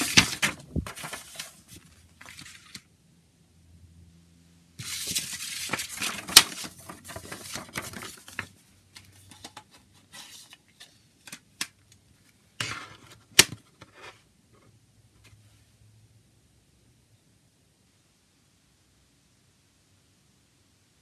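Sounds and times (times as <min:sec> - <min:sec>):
paper booklet rustling: 0:00.0 - 0:02.9, 0:04.8 - 0:11.7.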